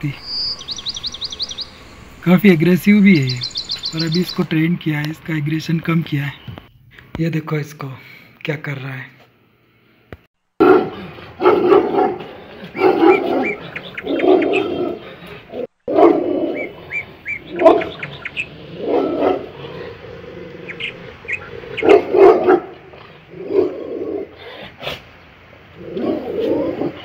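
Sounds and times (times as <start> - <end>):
dog barking: 10.6 - 15.2, 15.9 - 18.1, 18.7 - 19.7, 21.2 - 23.8.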